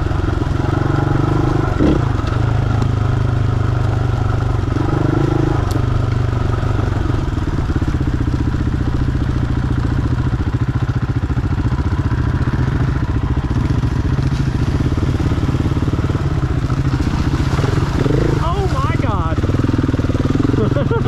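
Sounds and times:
dirt bike engine idling: 0.0 - 21.0.

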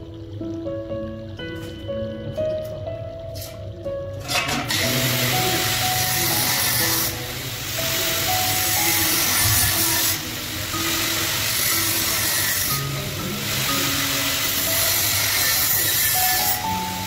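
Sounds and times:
background music: 0.0 - 17.0
angle grinder cutting steel: 4.3 - 17.0.

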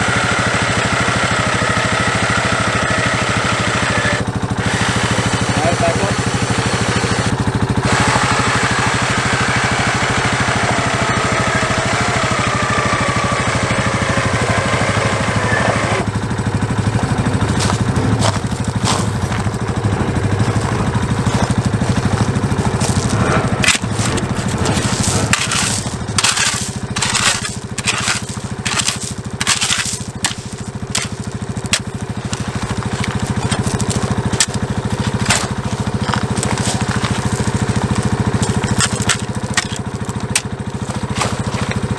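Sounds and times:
atv engine running: 0.0 - 41.9
spade striking gravel: 17.5 - 19.6, 20.3 - 41.9.

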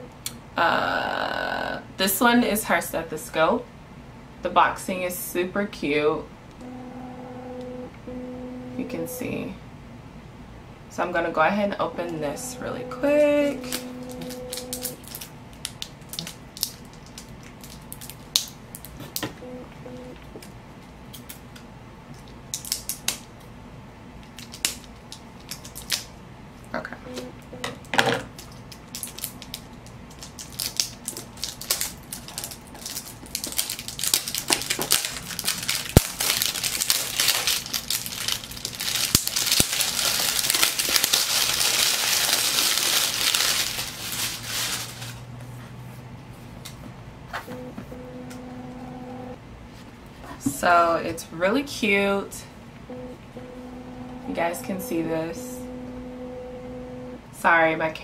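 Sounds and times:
packaging crinkling and rustling: 13.6 - 19.2, 24.2 - 26.1, 28.2 - 45.3.

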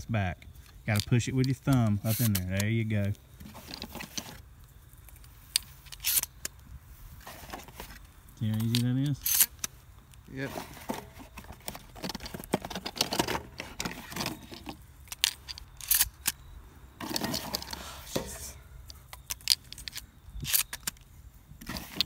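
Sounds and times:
shells loaded into shotgun: 0.9 - 2.8, 5.0 - 6.6, 8.5 - 9.7, 11.4 - 16.4, 17.0 - 17.8, 18.8 - 21.0.

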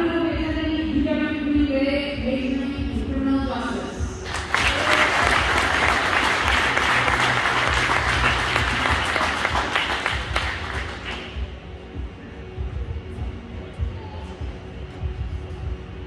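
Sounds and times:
audience applauding: 4.2 - 11.4.

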